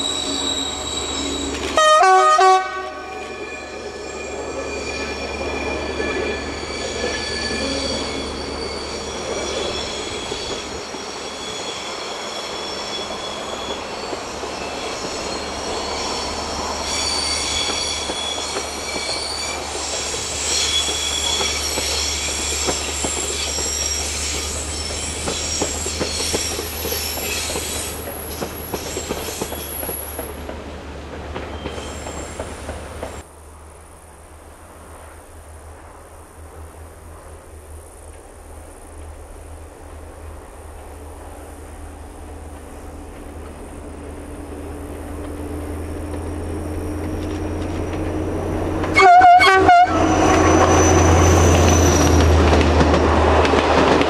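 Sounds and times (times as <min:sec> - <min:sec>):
train wheel flanges squealing: 0:00.0 - 0:02.2, 0:02.8 - 0:30.5, 0:31.4 - 0:33.2, 0:41.2 - 0:54.0
faint outdoor background: 0:00.0 - 0:54.0.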